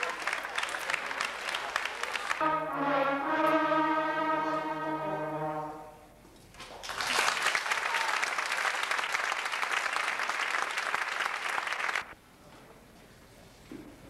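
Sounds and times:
audience applauding: 0:00.0 - 0:02.4, 0:06.6 - 0:12.2
concert band holding a chord: 0:02.4 - 0:06.1.

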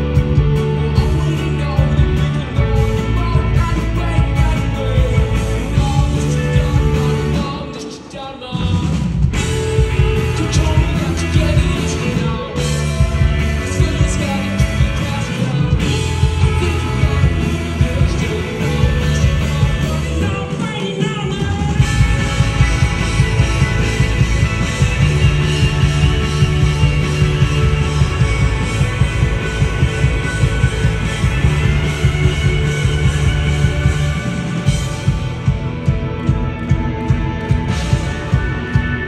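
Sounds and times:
live rock band: 0:00.0 - 0:39.0
person singing: 0:00.1 - 0:23.0.

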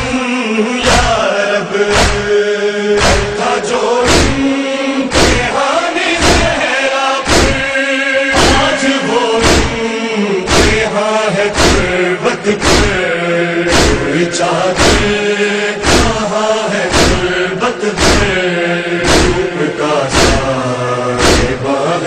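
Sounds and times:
men chanting in unison: 0:00.0 - 0:22.0
chest beating strikes: 0:01.9 - 0:02.4, 0:03.0 - 0:03.4, 0:04.0 - 0:04.5, 0:05.1 - 0:05.6, 0:06.2 - 0:06.6, 0:07.2 - 0:07.8, 0:08.4 - 0:08.8, 0:09.4 - 0:09.9, 0:10.5 - 0:10.9, 0:11.5 - 0:12.0, 0:12.6 - 0:13.0, 0:13.7 - 0:14.2, 0:14.8 - 0:15.2, 0:15.8 - 0:16.2, 0:16.9 - 0:17.4, 0:18.0 - 0:18.4, 0:19.0 - 0:19.5, 0:20.1 - 0:20.5, 0:21.2 - 0:21.6.

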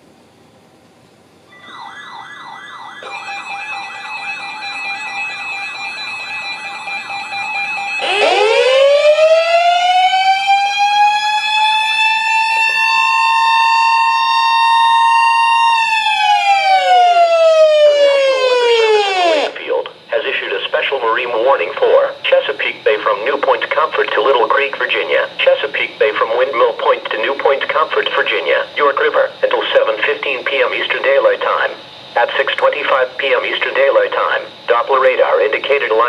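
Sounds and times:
warbling alert beeps: 0:01.5 - 0:07.4
loud siren tone: 0:01.5 - 0:19.7.

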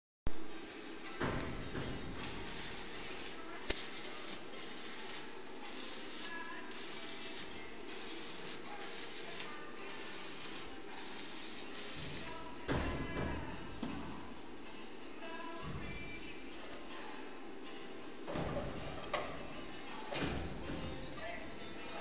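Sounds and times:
arc welding crackling hiss: 0:02.0 - 0:12.4.

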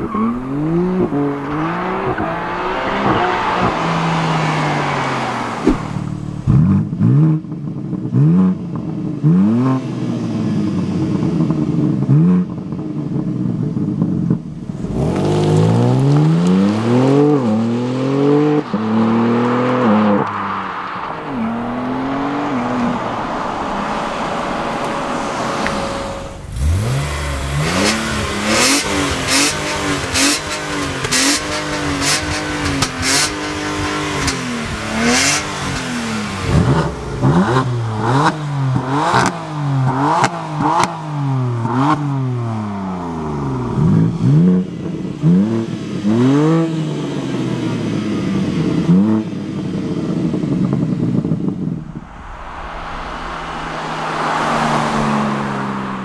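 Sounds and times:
car engine revving: 0:00.0 - 0:56.0
exhaust cracks: 0:13.4 - 0:41.0.

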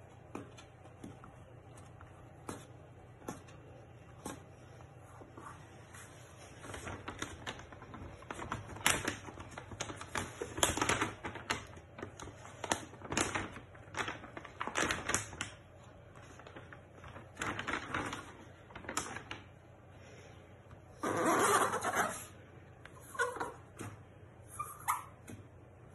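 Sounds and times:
backing paper peeling and crackling: 0:05.0 - 0:19.5.

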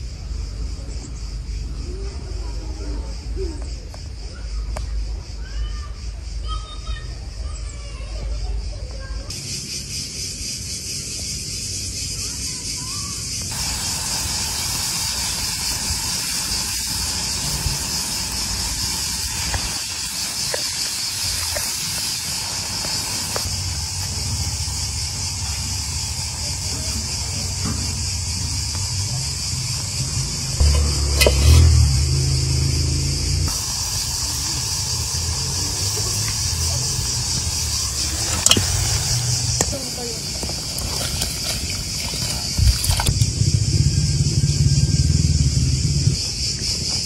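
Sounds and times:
high-pitched outdoor hiss: 0:00.0 - 0:47.0
low rumbling: 0:13.5 - 0:46.5.

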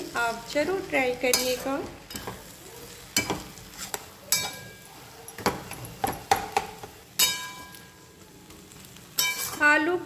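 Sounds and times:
spatula clinking against pan: 0:01.3 - 0:02.5, 0:03.1 - 0:07.9, 0:09.2 - 0:09.7
spatula scraping a metal pan: 0:03.2 - 0:04.8, 0:09.2 - 0:09.7.

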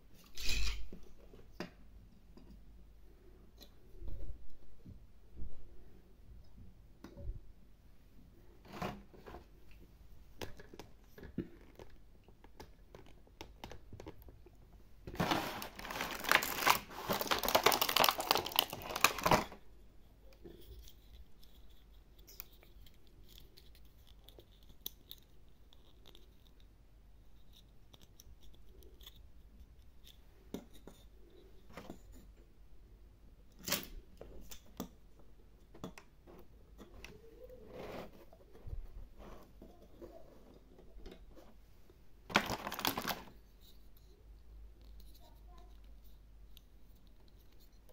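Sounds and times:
plastic packaging tearing: 0:15.2 - 0:19.6, 0:42.3 - 0:43.3.

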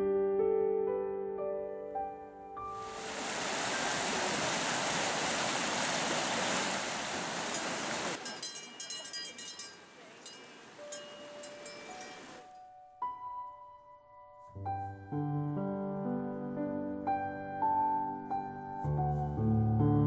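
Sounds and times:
whitewater rushing over rocks: 0:02.8 - 0:08.2
scattered clinks: 0:08.2 - 0:12.6
short ringing tones: 0:08.2 - 0:12.6.

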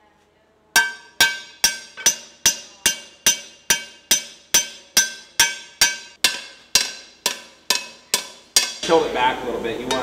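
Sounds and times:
hammer striking metal pan: 0:00.8 - 0:10.0.

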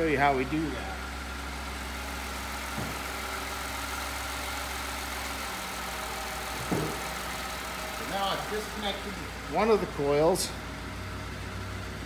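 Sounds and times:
truck engine idling: 0:00.0 - 0:12.0
clunk under the hood: 0:02.7 - 0:03.2, 0:06.6 - 0:07.2.

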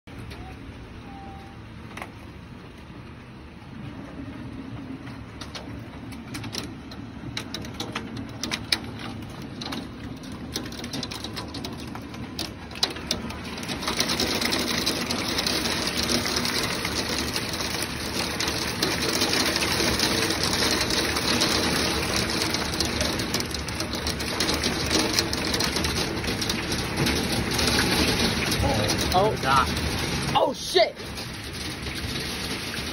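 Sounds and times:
heavy rain on wooden dock: 0:00.1 - 0:32.9
raindrops tapping on phone: 0:05.4 - 0:30.3.

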